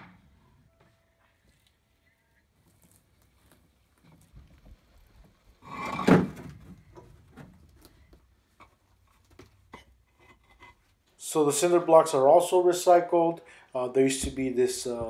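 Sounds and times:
paver scraping on metal wheelbarrow: 5.6s - 6.4s.

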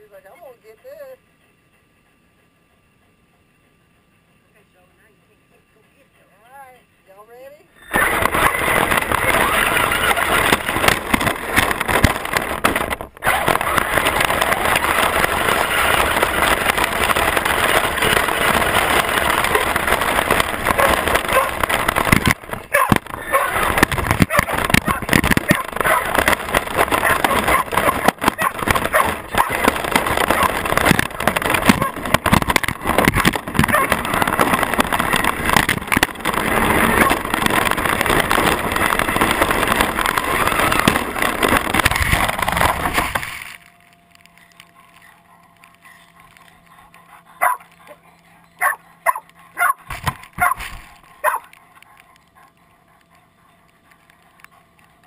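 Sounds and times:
faint steady hum: 0.0s - 55.0s
rc truck rattling over grass: 7.8s - 45.2s, 47.4s - 48.0s, 48.6s - 52.5s.

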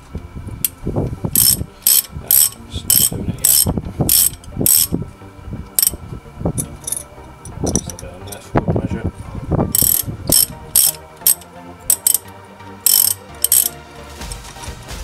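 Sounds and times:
socket ratchet clicking: 1.4s - 4.9s, 6.6s - 8.0s, 9.8s - 13.8s.

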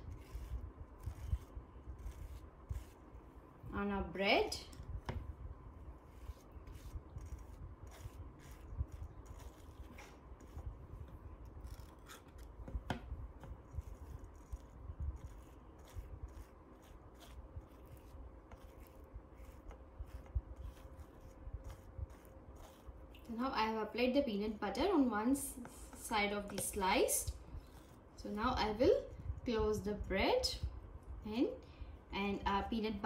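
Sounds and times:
knife scraping peanut butter on bread: 0.0s - 3.2s, 6.0s - 23.0s.

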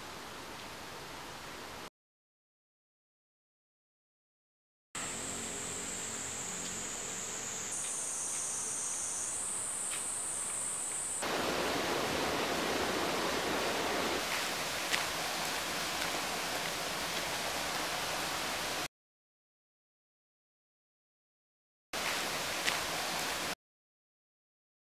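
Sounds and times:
insects trilling: 5.0s - 18.8s
loud even hiss: 5.0s - 18.9s, 22.0s - 23.6s.

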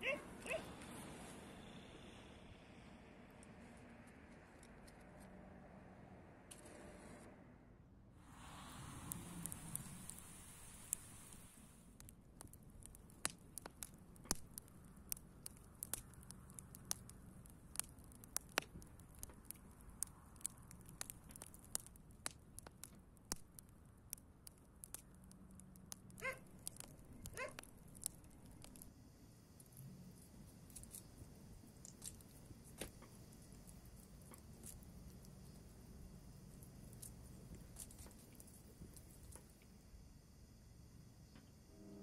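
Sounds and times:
wood fire crackling and popping: 8.3s - 39.9s.

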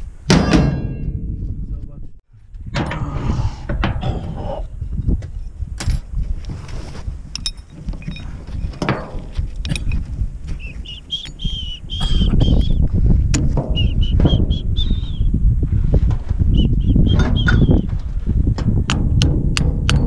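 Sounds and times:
metallic clinks of tools: 7.3s - 8.3s, 9.6s - 10.0s
bird chirping: 10.6s - 12.8s.

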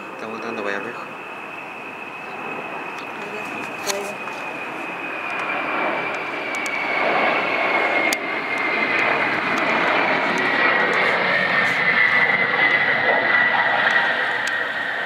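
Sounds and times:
jet flying low past: 0.0s - 15.0s.

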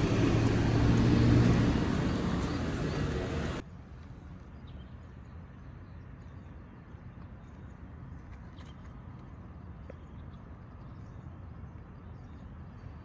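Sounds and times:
vehicle hum and hiss: 0.0s - 5.6s.

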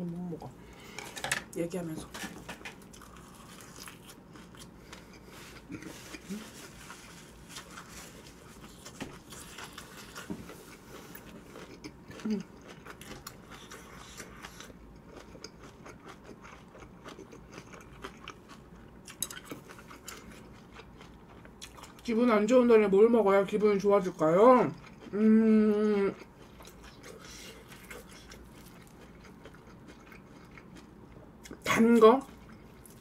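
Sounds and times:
close chewing with wet mouth clicks: 8.6s - 22.1s, 26.1s - 31.6s.

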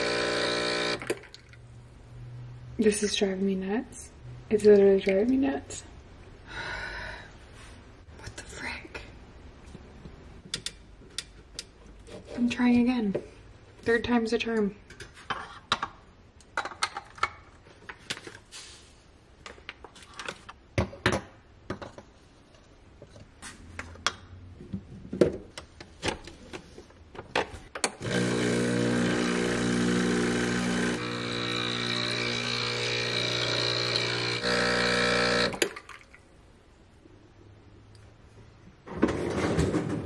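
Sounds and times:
espresso machine pump buzzing: 0.0s - 1.1s, 28.0s - 35.6s.

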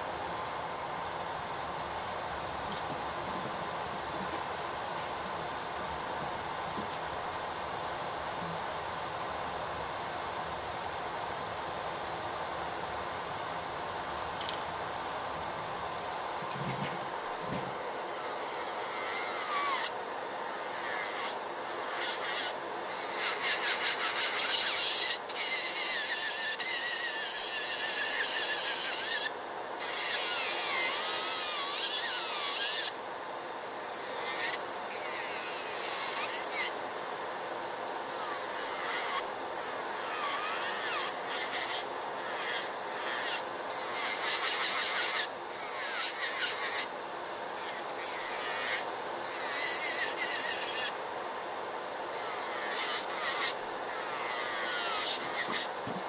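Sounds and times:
dust collector fan hum: 0.0s - 56.0s
nail drill grinding: 18.1s - 19.9s, 20.7s - 32.9s, 52.2s - 55.7s.

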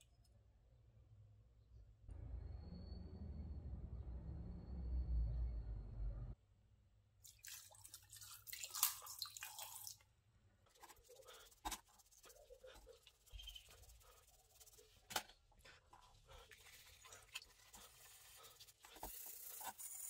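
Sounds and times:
water splashing and dripping: 7.2s - 10.0s.

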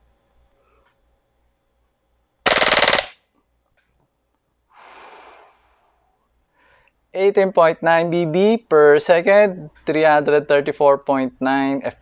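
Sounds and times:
airsoft rifle full-auto burst: 2.4s - 3.2s
breath blown through lips: 4.8s - 6.0s.

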